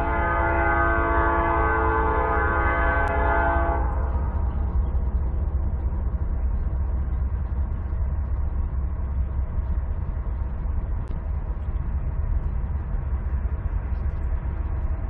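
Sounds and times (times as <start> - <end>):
locomotive horn blast: 0.0 - 4.2
low rumble of approaching train: 0.0 - 15.0.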